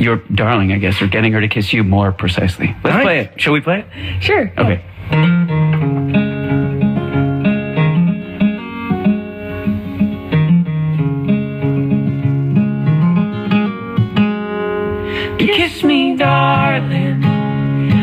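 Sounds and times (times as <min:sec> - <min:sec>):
picked guitar notes: 0:04.9 - 0:18.0.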